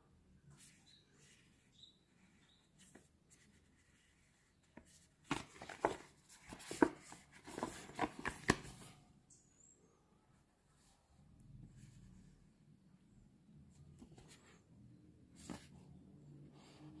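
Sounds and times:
card packaging rustling and crinkling: 0:04.9 - 0:08.9.

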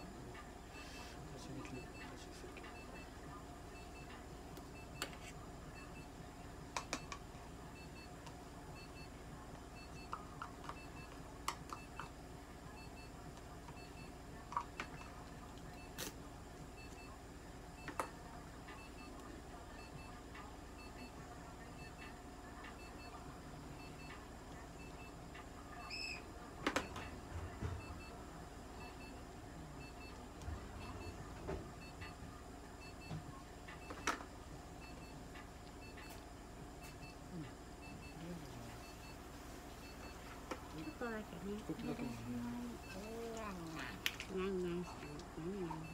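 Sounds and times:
steady hum: 0:00.0 - 0:45.9.

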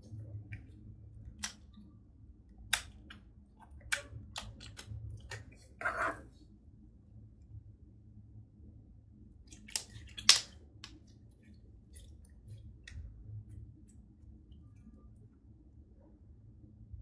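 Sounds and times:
slime popping and clicking: 0:09.6 - 0:11.0.

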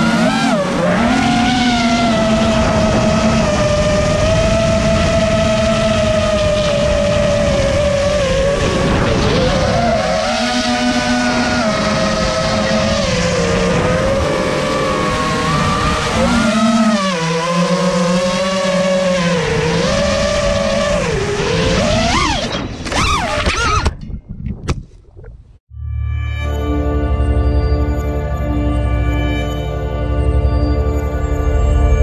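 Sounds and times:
quadcopter motors whining: 0:00.0 - 0:23.9.

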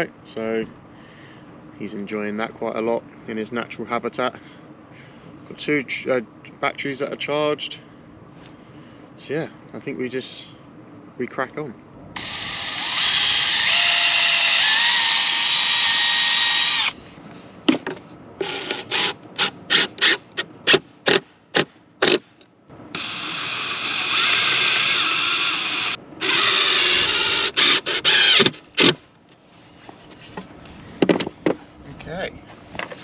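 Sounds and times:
drill short bursts: 0:12.1 - 0:17.0, 0:18.4 - 0:29.0
cordless drill whirring: 0:12.2 - 0:17.0, 0:23.0 - 0:28.9.

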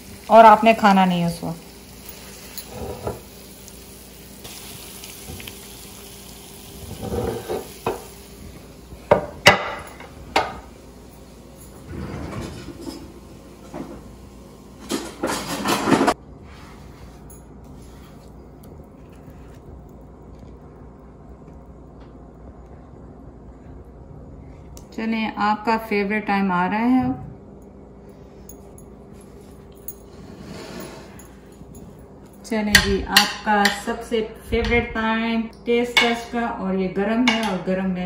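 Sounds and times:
dishes and utensils clinking: 0:02.0 - 0:03.3, 0:14.8 - 0:16.2.

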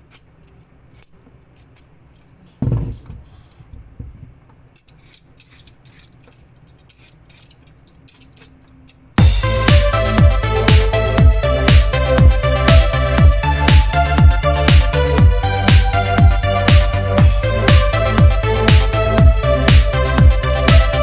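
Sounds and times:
loud thump: 0:02.6 - 0:04.2
electronic dance music: 0:09.2 - 0:21.0.

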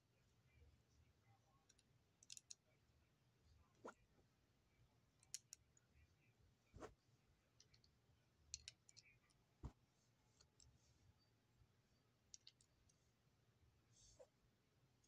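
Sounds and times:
plastic toy bricks clicking: 0:01.7 - 0:02.6, 0:12.3 - 0:12.7.

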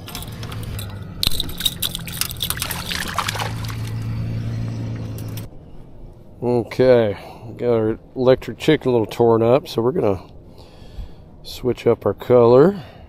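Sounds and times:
water splashing and trickling: 0:00.0 - 0:05.5
low hum: 0:00.0 - 0:11.5.

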